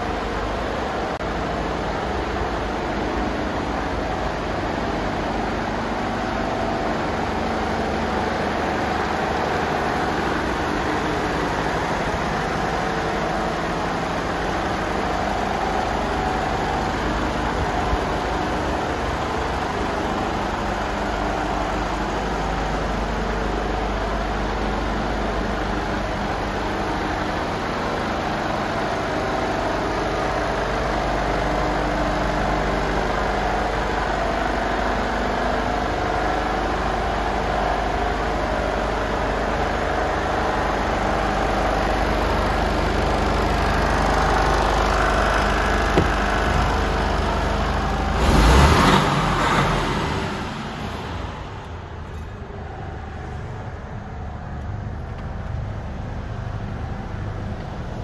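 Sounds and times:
diesel engine idling: 0.0s - 58.0s
cab door clunk: 45.9s - 46.9s.

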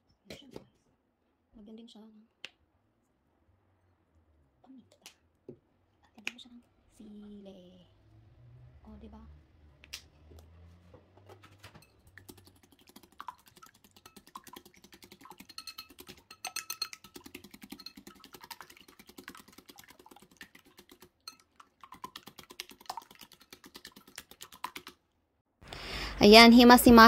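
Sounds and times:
wire whisk clicking against bowl: 13.8s - 18.8s.

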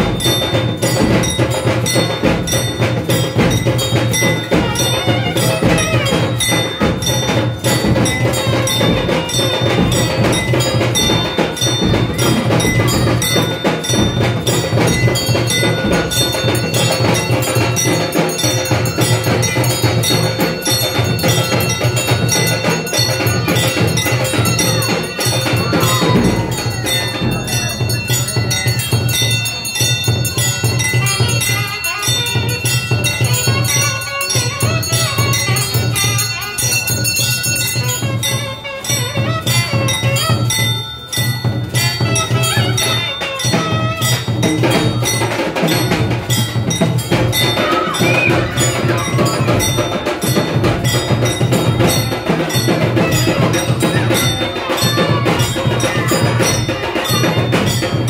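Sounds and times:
bells ringing rapidly: 0.0s - 58.0s
percussion beat: 0.0s - 58.0s.

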